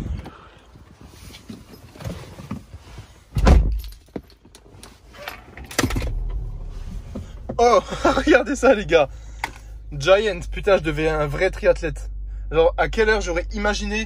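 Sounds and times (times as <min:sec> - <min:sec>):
car engine starting and idling: 0:04.5 - 0:14.0
car door shutting: 0:05.2 - 0:08.3.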